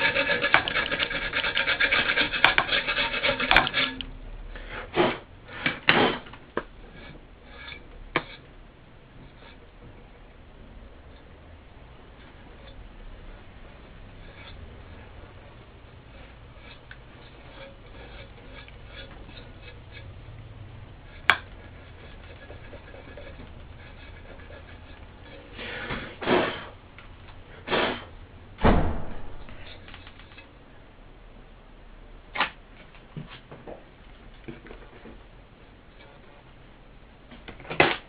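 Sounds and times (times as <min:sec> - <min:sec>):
scraping: 0:00.0 - 0:04.1, 0:12.0 - 0:20.4, 0:21.0 - 0:26.8
knock: 0:28.6 - 0:29.6
low thump: 0:28.6 - 0:29.7
clicks and rubbing on speaker frame: 0:29.5 - 0:30.5.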